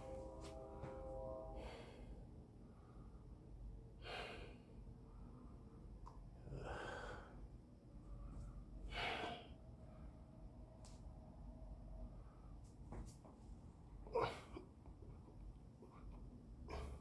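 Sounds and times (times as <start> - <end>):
person breathing heavily: 1.6 - 5.7, 6.5 - 10.2, 16.0 - 17.0.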